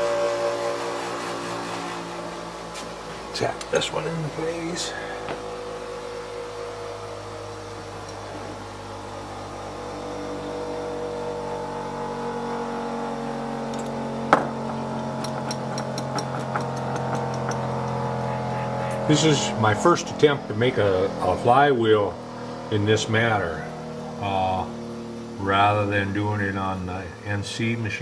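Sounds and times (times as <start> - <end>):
steady machine hum: 0.0 - 28.0
small hammer tapping metal: 13.8 - 18.0.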